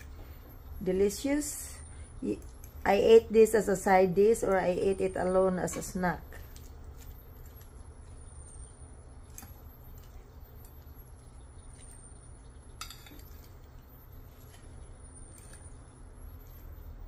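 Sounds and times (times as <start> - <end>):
steady low hum: 0.0 - 17.0
fork clinking against ceramic bowl: 12.8 - 13.5.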